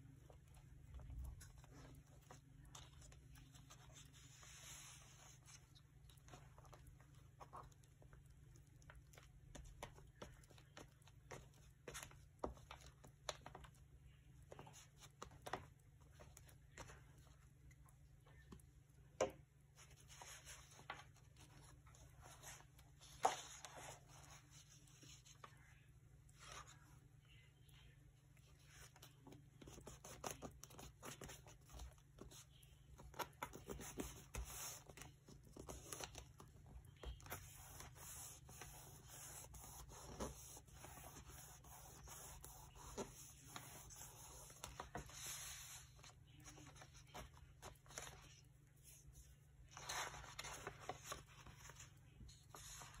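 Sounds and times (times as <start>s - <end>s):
paper rustling and scraping: 19.8s - 25.5s, 37.1s - 53.0s.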